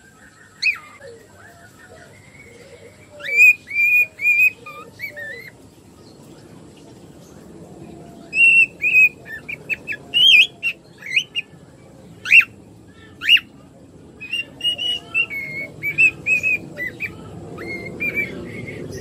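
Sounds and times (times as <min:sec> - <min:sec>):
cockatiel whistling: 0:14.2 - 0:19.0.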